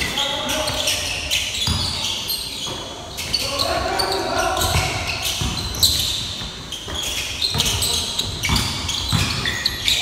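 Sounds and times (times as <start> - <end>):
sneakers squeaking on floor: 0.0 - 10.0
basketball bouncing: 1.6 - 2.0, 4.6 - 10.0.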